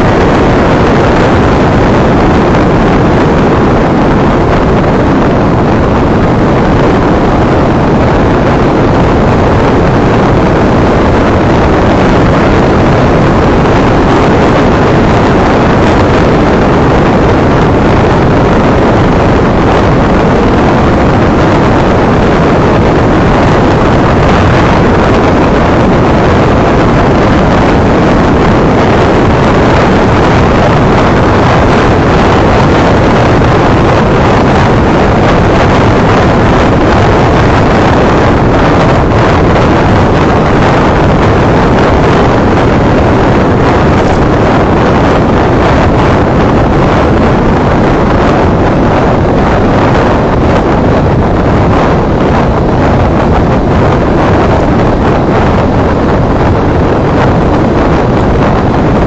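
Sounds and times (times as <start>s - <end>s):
wind and road noise: 0.0s - 59.0s.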